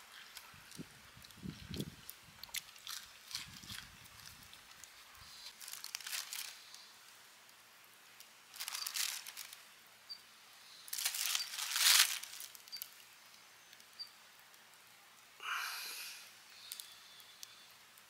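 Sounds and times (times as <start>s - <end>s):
plastic bag rustling: 2.6s - 6.9s, 8.5s - 9.7s, 10.7s - 13.0s.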